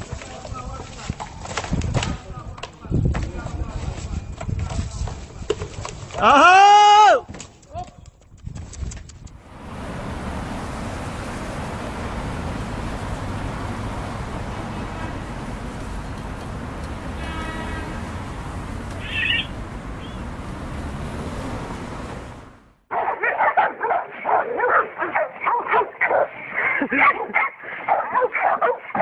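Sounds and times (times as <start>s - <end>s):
outdoor background noise: 0.0s - 29.0s
dog barking rapidly: 22.9s - 29.0s.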